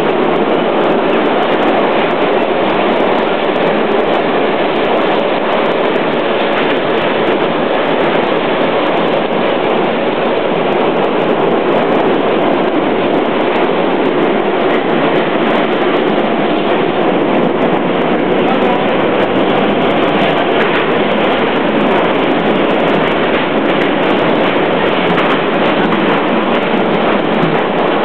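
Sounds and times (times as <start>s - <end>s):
train rumbling on rails: 0.0s - 28.0s.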